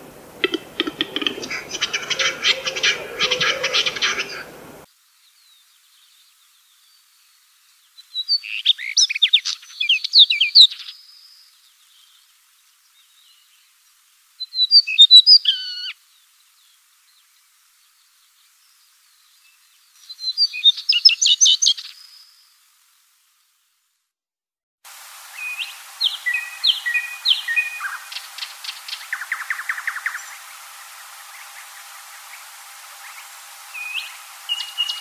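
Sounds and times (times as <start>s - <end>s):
songbird singing: 0.0s - 12.2s, 25.3s - 35.0s.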